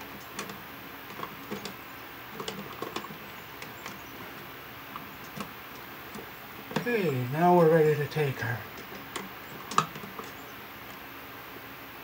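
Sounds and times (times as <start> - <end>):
wires clicking into outlet box: 2.4 - 6.9, 8.7 - 10.4.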